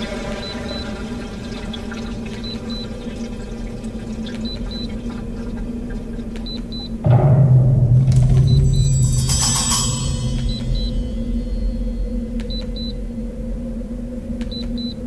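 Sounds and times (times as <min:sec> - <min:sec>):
loud low drone: 0:07.0 - 0:14.4
short high beeps: 0:08.4 - 0:11.7.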